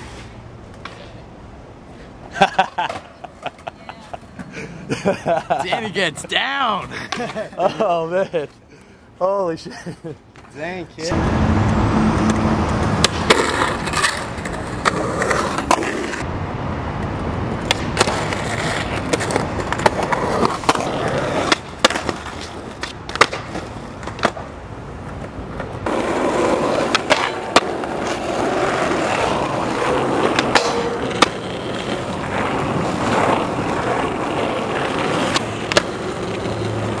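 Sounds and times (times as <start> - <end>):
skateboard wheels rolling: 0.0 - 8.6, 10.3 - 37.0
skateboard clacking on ground: 12.2 - 16.3, 17.0 - 37.0.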